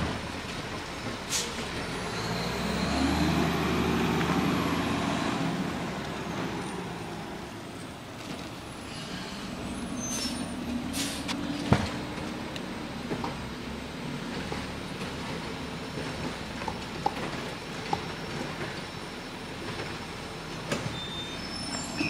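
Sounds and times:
diesel truck engine running: 0.0s - 22.0s
air brake hisses: 1.3s - 1.6s, 8.9s - 11.4s.

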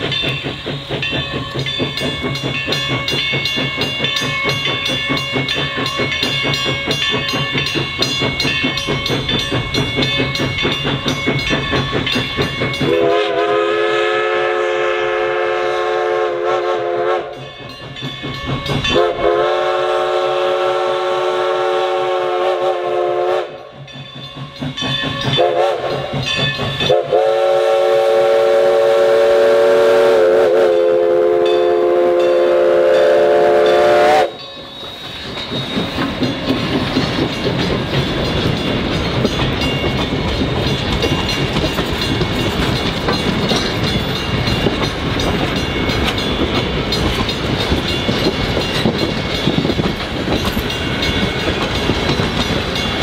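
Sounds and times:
steam locomotive chugging: 0.0s - 53.0s
steam whistle blasts: 12.8s - 17.4s, 18.9s - 23.6s, 25.4s - 26.1s, 26.8s - 35.0s.

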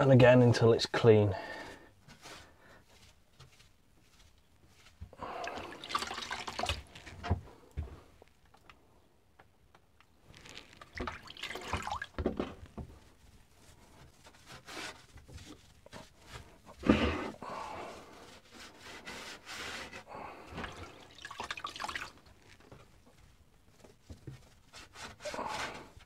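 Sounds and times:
wet sponge squeezed in bucket: 5.1s - 7.3s, 10.3s - 12.2s, 20.5s - 22.8s
water splashing and dripping: 5.2s - 7.1s, 10.8s - 12.2s, 20.6s - 22.5s.

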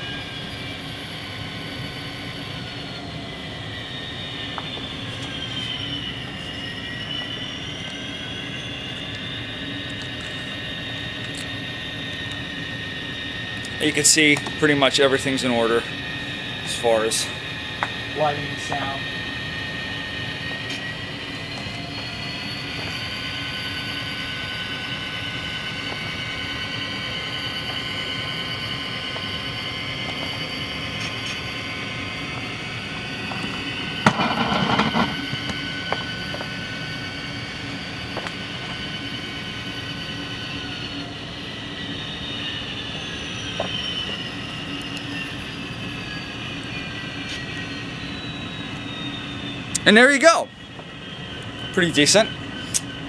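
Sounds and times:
model train diesel engine sound: 0.0s - 53.0s.

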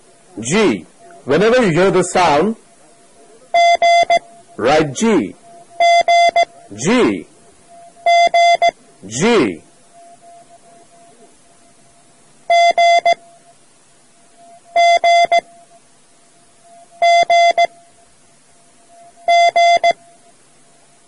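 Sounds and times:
faint tape hiss: 0.0s - 21.0s
morse code beeping tone: 3.5s - 11.8s, 12.5s - 13.6s, 14.3s - 15.9s, 16.6s - 18.0s, 18.8s - 20.3s.

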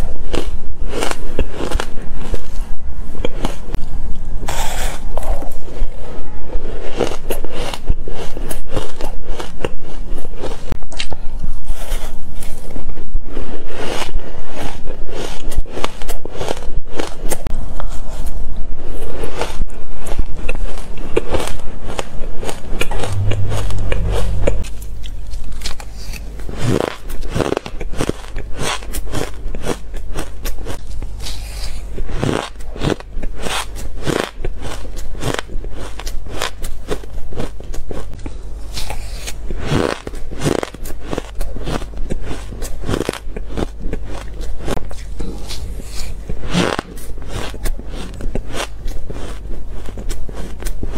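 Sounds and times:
crunching and chewing ice: 0.0s - 23.3s, 26.4s - 50.9s
steady low hum: 21.0s - 32.2s.

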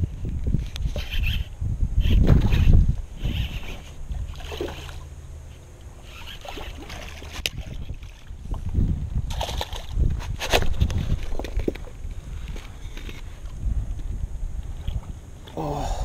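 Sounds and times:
fishing reel winding: 0.9s - 4.0s, 6.0s - 7.0s
sharp reel click: 6.0s - 6.8s.

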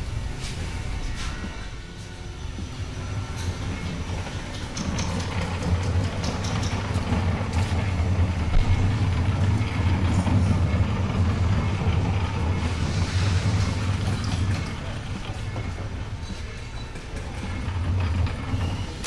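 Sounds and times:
machinery hum: 0.0s - 19.0s
clicks and clanks: 4.5s - 7.9s.

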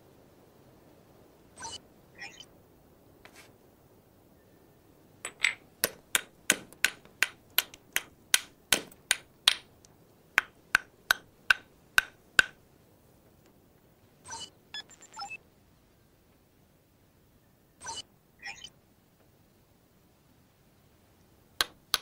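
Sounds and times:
stone hammer tapping flint: 5.3s - 12.6s, 21.6s - 22.0s.

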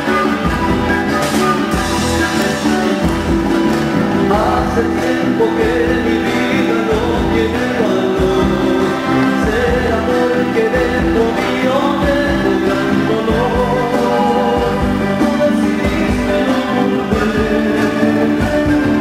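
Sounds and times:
folk band playing: 0.0s - 19.0s
person singing lead: 4.2s - 19.0s.

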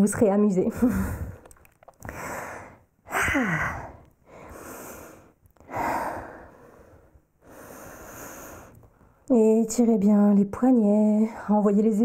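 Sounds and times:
woman breathing heavily: 0.7s - 9.3s.

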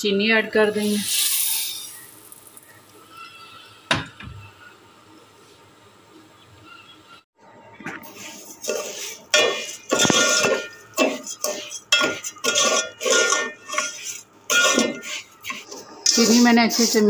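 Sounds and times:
spoon scraping metal pot: 8.1s - 17.0s.

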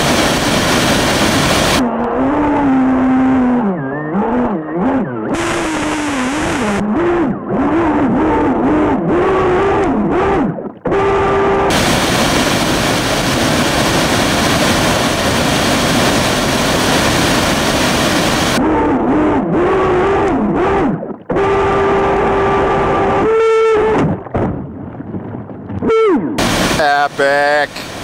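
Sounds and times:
waterfall rushing: 0.0s - 1.8s, 11.7s - 18.6s, 26.4s - 28.0s.

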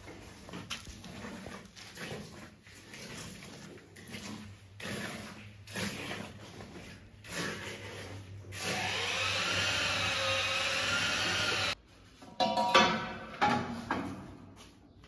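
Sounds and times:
trowel scraping wet mortar: 0.0s - 11.8s
small motor whirring: 8.6s - 11.8s.

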